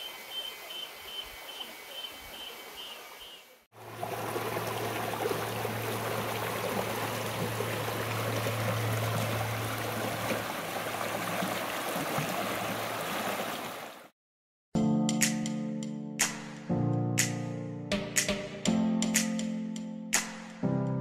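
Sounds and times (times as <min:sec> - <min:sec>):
waterfall rushing: 0:03.8 - 0:14.0.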